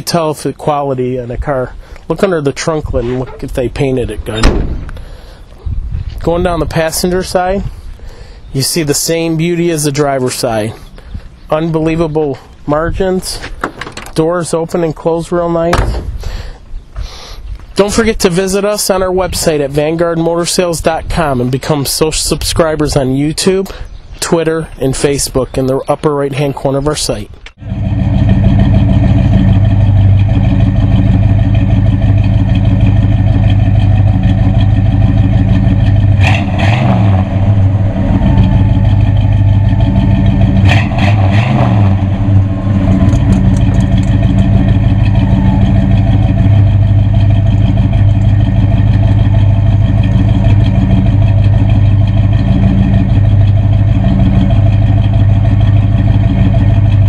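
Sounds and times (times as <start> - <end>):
clattering clunks: 2.9 - 5.1, 13.4 - 14.2, 15.7 - 16.6
car engine idling: 27.6 - 57.0.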